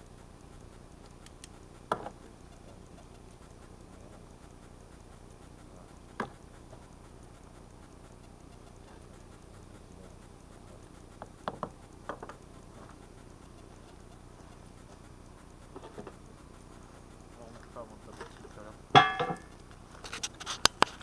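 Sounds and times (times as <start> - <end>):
light metal clinks: 17.2 - 20.6.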